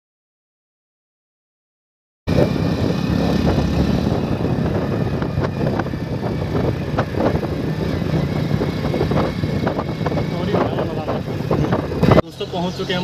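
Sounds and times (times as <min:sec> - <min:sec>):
wind on microphone: 0:02.3 - 0:12.2
motorbike engine running: 0:02.3 - 0:13.0.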